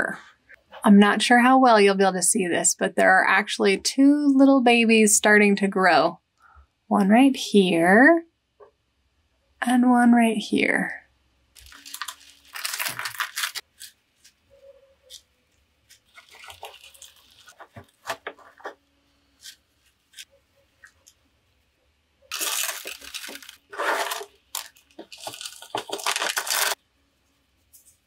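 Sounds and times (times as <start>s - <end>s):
scratchy rustling: 11.6s - 20.4s, 22.3s - 26.8s.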